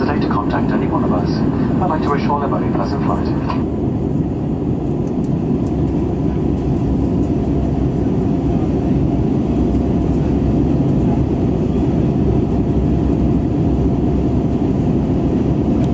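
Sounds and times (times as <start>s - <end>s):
faint steady hum: 0.0s - 5.2s
airplane cabin roar: 0.0s - 15.9s.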